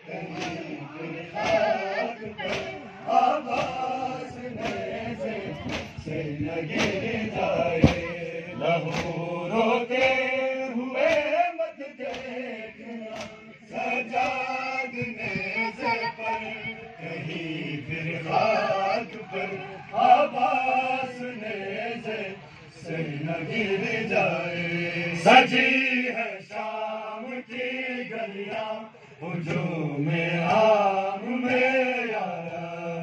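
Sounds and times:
crowd of men chanting: 0.0 - 33.0
hands beating on chests: 0.3 - 0.7, 1.4 - 2.8, 3.5 - 5.0, 5.6 - 6.0, 6.7 - 8.1, 8.8 - 9.3, 9.9 - 11.4, 12.0 - 12.5, 13.1 - 13.4.

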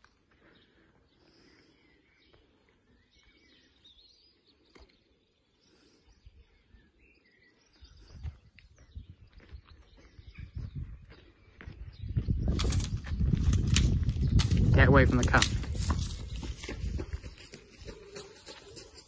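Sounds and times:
faint birdsong: 0.0 - 19.0.

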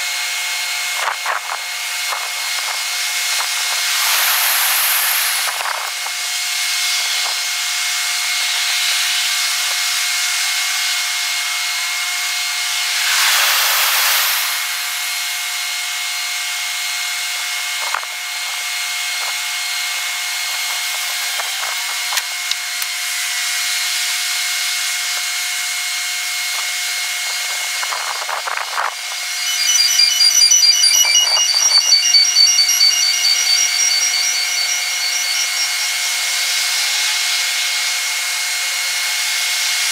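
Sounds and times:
steady high hiss: 2.3 - 38.3
repeating high chiming tones: 3.8 - 6.0, 12.7 - 15.8, 29.1 - 37.3.

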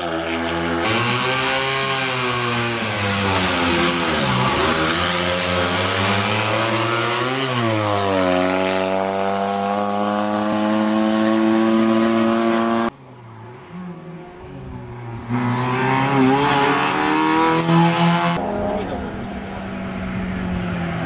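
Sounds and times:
small engine revving hard: 0.3 - 12.9, 15.3 - 18.4.

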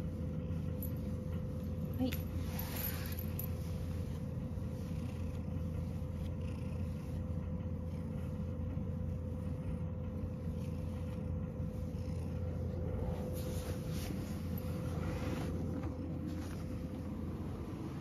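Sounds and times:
cat purring: 0.0 - 18.0.

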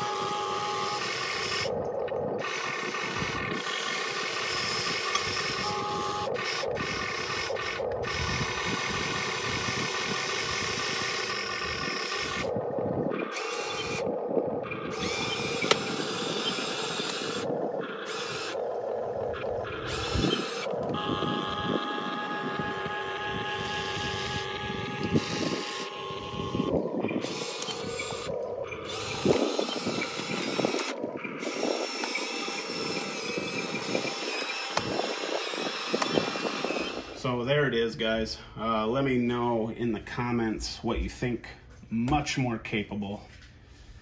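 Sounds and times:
electric motors whining: 0.0 - 38.2
sharp clicks: 0.8 - 21.0, 23.6 - 37.2.

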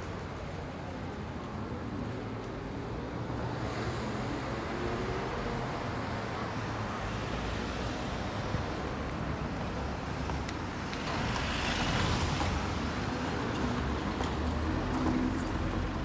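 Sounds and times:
city traffic hum: 0.0 - 16.0.

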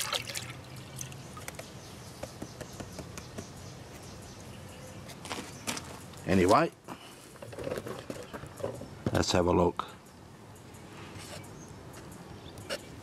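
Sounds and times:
water splashing in a tub: 0.0 - 1.2.

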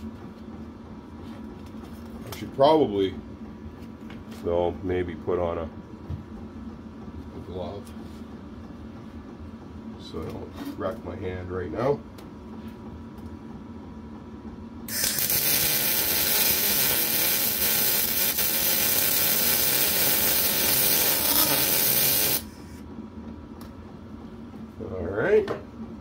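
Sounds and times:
welding arc crackling hiss: 14.9 - 22.7.

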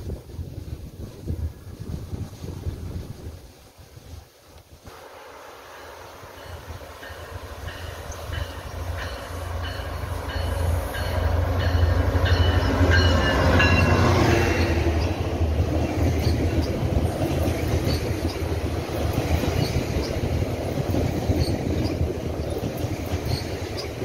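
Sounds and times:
diesel locomotive passing: 4.9 - 24.0
wheels clicking over rail joints: 6.4 - 24.0.

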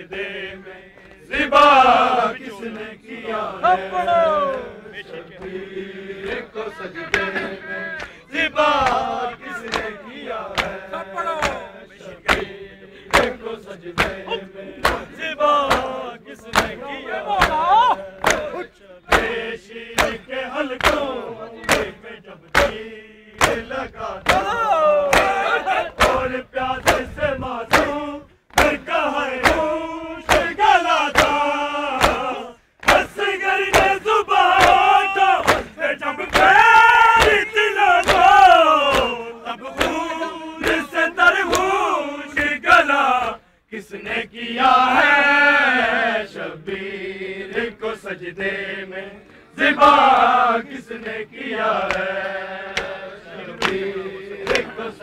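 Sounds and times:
men chanting in unison: 0.0 - 55.0
hands slapping on bare chests: 8.8 - 10.8, 11.4 - 11.6, 12.2 - 12.5, 13.1 - 13.4, 14.0 - 15.1, 15.7 - 16.8, 17.4 - 17.6, 18.2 - 19.4, 20.0 - 22.8, 23.4 - 26.2, 26.8 - 27.1, 27.7 - 28.8, 29.4 - 39.2, 39.8 - 40.9, 41.5 - 42.6, 51.8 - 52.1, 52.7 - 53.0, 53.6 - 54.8.

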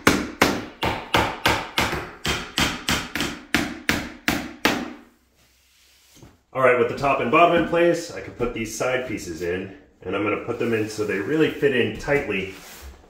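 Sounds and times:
hammer striking nails into wood: 0.0 - 5.0.

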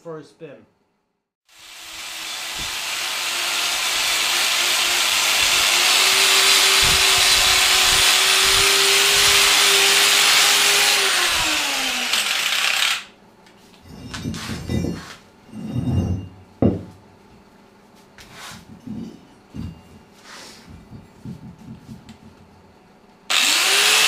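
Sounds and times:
angle grinder grinding metal: 1.5 - 13.1, 23.3 - 24.0.

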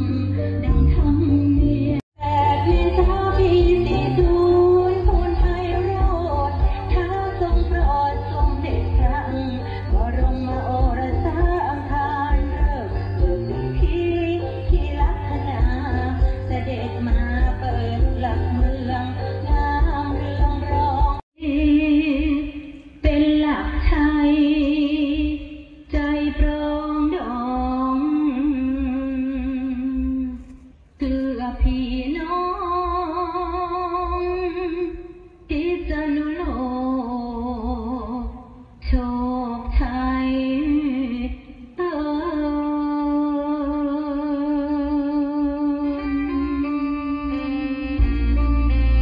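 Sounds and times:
traditional music: 0.0 - 21.2, 45.6 - 49.0.

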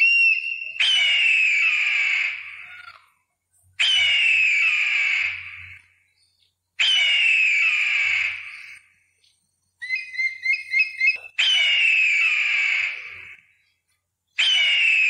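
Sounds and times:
high chirping whistles: 0.0 - 2.9, 6.2 - 13.3, 14.3 - 15.0
eagle screeching: 0.0 - 3.2, 3.8 - 5.9, 6.8 - 8.9, 9.8 - 13.5, 14.4 - 15.0.

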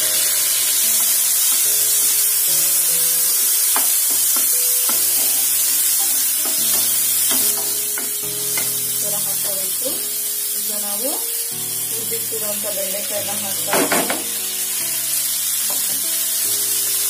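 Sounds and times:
soft background music: 0.0 - 17.0
vegetables sizzling in oil: 0.0 - 17.0.

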